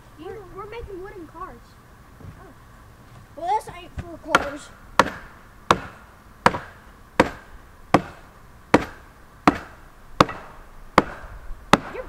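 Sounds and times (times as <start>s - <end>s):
hammer blows on wood: 4.0s - 12.0s.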